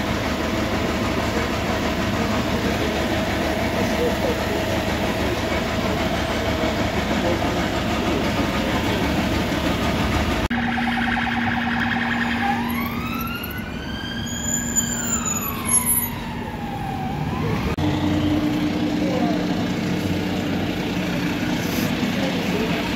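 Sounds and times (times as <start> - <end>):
fire engine idling: 0.0 - 22.9
emergency siren wailing: 10.5 - 20.3.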